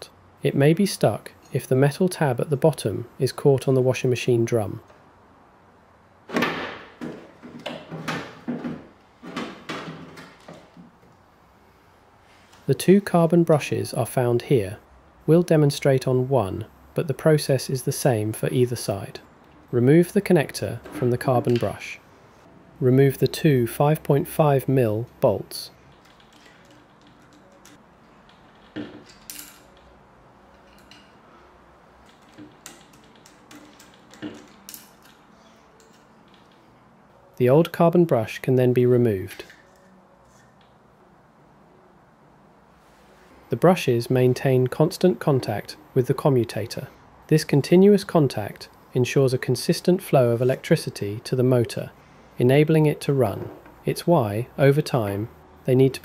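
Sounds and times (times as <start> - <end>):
small metal bolts clinking: 25.9 - 31.3, 32.0 - 36.6.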